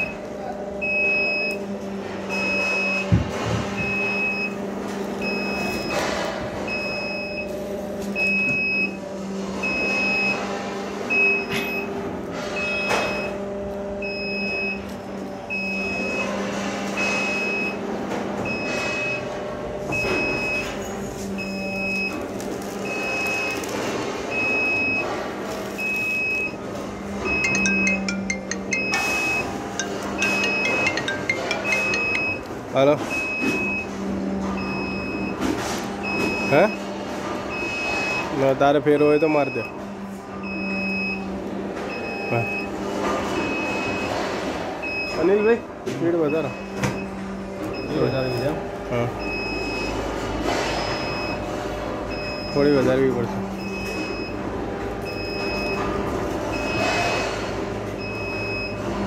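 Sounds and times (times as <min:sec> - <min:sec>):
short high warning beeps: 0:27.3 - 0:32.5.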